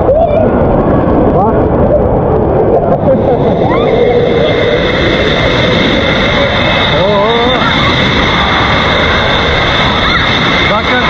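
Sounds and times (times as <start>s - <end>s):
crowd din in pool hall: 0.0s - 10.7s
water splashing and rushing: 0.0s - 11.0s.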